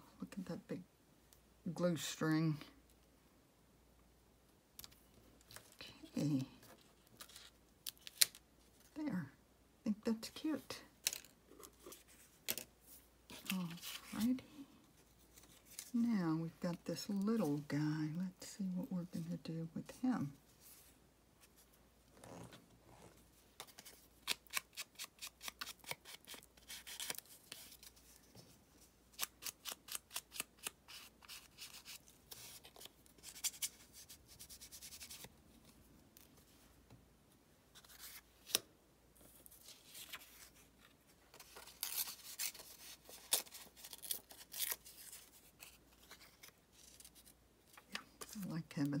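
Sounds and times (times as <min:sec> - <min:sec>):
paper rustling: 0:11.0 - 0:14.4.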